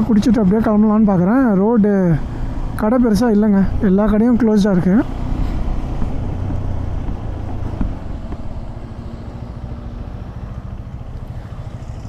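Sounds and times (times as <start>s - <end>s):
road and wind noise: 0.0s - 12.0s
motorcycle engine running: 3.6s - 12.0s.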